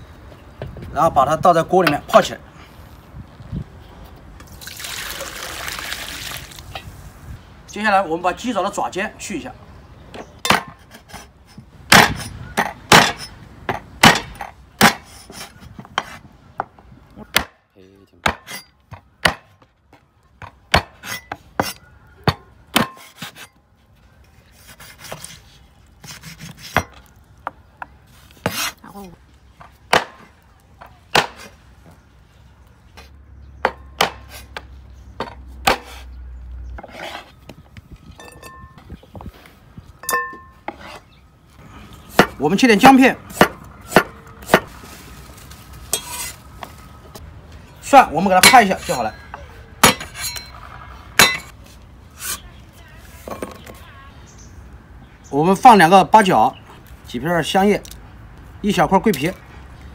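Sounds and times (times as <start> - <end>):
cleaver chopping on wooden board: 11.9 - 13.3, 14.0 - 16.2, 18.2 - 19.6, 20.4 - 23.4, 31.1 - 31.5, 33.6 - 36.0, 43.3 - 44.7.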